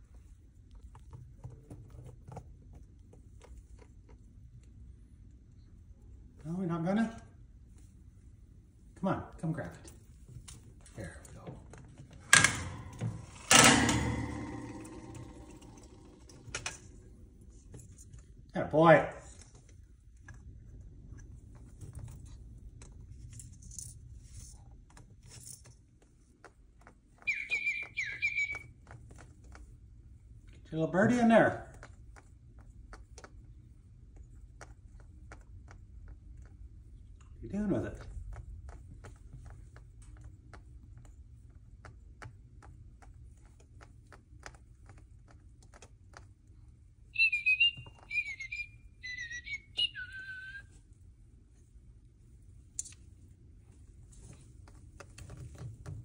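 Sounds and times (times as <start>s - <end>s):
beak clicks and rustling: 19.3s - 50.8s, 52.4s - 56.0s
beak clicking on toy: 27.2s - 28.7s
high bird chirping: 27.2s - 28.7s, 47.1s - 50.6s.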